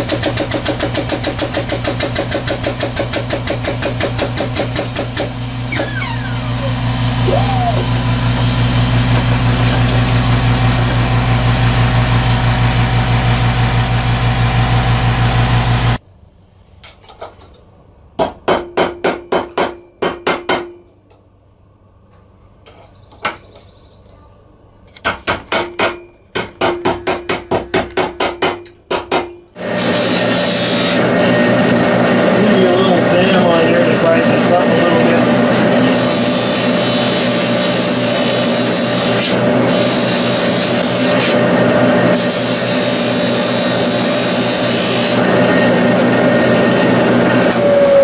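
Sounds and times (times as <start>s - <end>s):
hydraulic press motor humming: 3.0s - 16.0s, 29.6s - 48.0s
polishing buffer motor running: 5.0s - 16.0s, 29.6s - 48.0s.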